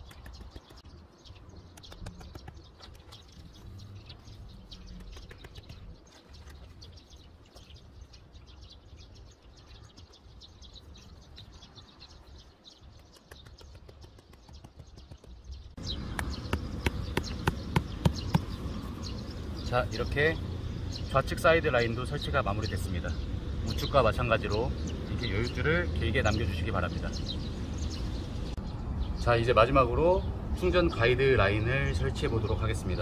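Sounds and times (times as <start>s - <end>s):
birds chirping: 0.0s - 33.0s
outdoor background noise: 0.0s - 33.0s
sharp knocks: 16.1s - 18.6s.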